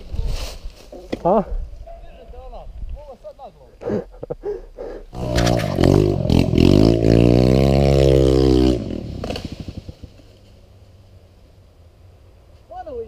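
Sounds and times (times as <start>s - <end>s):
dirt bike engine revving: 5.1s - 10.4s.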